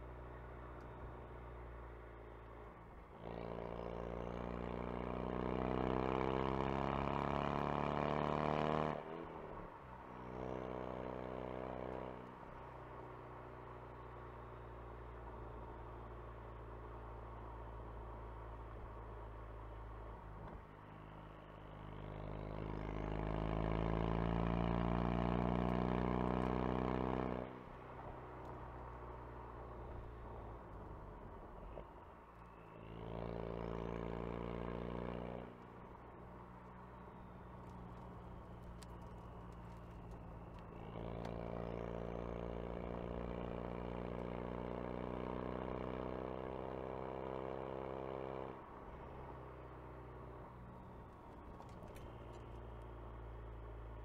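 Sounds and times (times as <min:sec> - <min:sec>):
car engine accelerating: 0:19.8 - 0:54.0.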